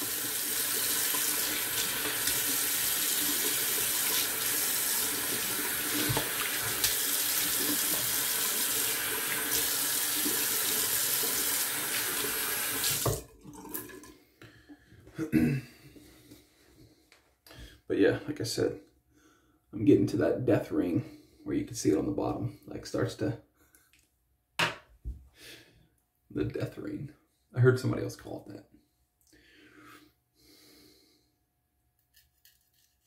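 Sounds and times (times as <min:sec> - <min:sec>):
tap running into sink: 0:05.9 - 0:07.0.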